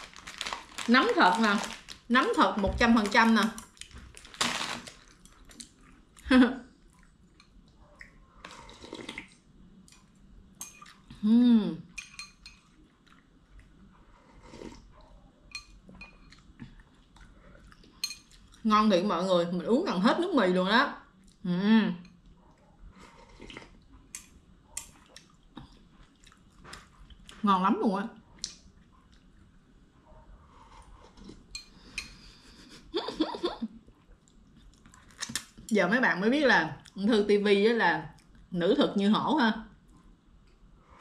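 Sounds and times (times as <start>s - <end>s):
woman's voice: 0.8s - 3.6s, 6.3s - 6.6s, 18.6s - 22.0s, 27.4s - 28.2s, 35.7s - 39.7s
person chewing noodles: 6.8s - 10.2s, 12.6s - 15.0s, 16.2s - 18.6s, 22.9s - 27.4s, 30.4s - 32.4s
eating noodles: 8.0s - 9.4s, 22.9s - 27.3s.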